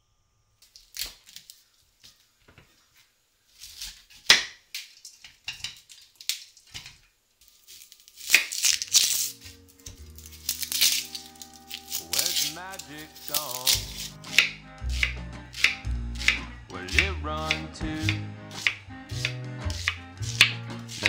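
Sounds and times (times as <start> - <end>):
knife cracking cauliflower: 0.6 - 1.6, 7.6 - 21.0
knife crunching onion skin: 0.6 - 1.7, 3.5 - 6.8, 7.4 - 21.0
music: 8.9 - 21.0.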